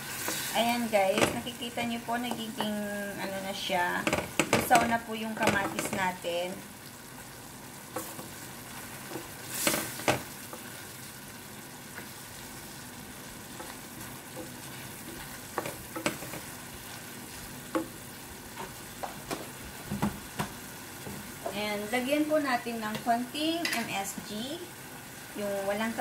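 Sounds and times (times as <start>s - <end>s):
wooden spoon scraping a pan: 0.0s - 1.6s, 2.2s - 6.2s, 7.9s - 11.0s, 13.3s - 20.3s
vegetables sizzling in a pan: 0.0s - 26.0s.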